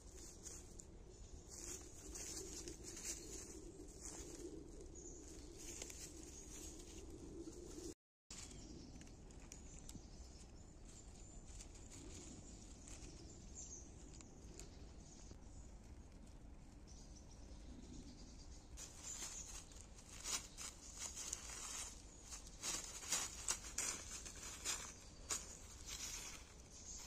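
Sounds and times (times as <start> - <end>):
dog moving through dry leaves: 1.5 - 4.5, 18.8 - 27.0.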